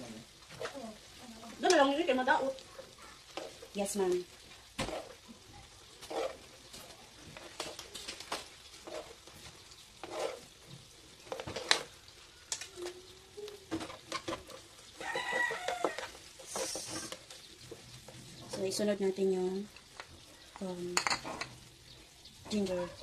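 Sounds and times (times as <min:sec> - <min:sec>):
food frying in oil: 0:00.0 - 0:23.0
utensils scraping a pan: 0:03.3 - 0:03.9, 0:04.8 - 0:05.2, 0:06.0 - 0:10.6, 0:13.7 - 0:18.8.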